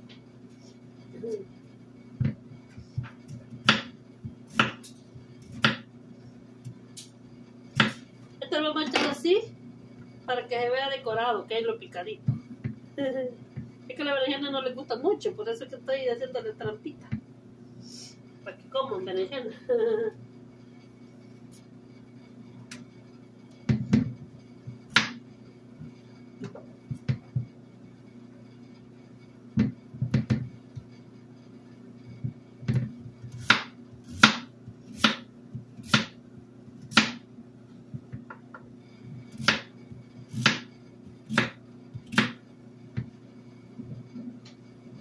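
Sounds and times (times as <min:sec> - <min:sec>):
knife chopping on wooden board: 0:03.0 - 0:05.9, 0:07.8 - 0:08.0, 0:24.8 - 0:25.2, 0:32.6 - 0:36.2, 0:36.8 - 0:37.2, 0:39.3 - 0:39.7, 0:40.3 - 0:40.7, 0:41.3 - 0:42.4.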